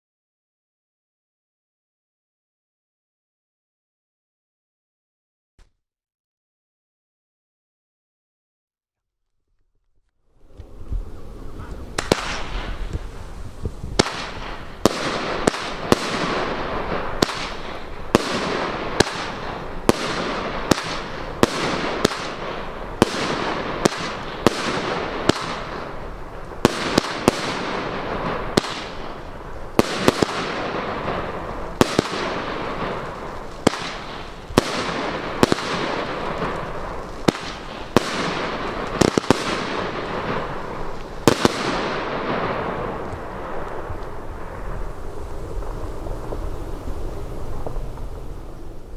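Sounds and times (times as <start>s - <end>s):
crackling hiss of firework bursts: 10.3s - 48.9s
firework bangs: 10.4s - 48.9s.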